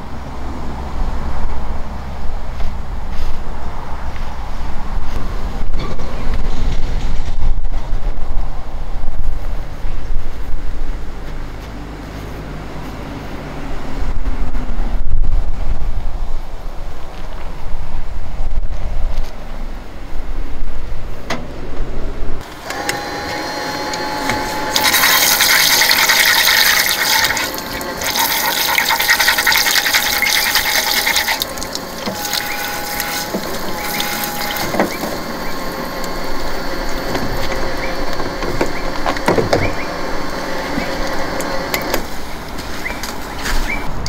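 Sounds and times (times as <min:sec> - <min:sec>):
steady whine: 0:19.6 - 0:44.0
water rushing hiss: 0:24.6 - 0:35.6.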